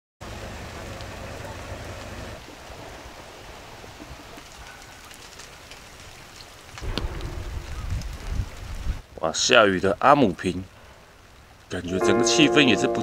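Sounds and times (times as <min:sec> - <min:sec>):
light rain falling: 0:00.2 - 0:13.0
low rumble: 0:06.8 - 0:09.1.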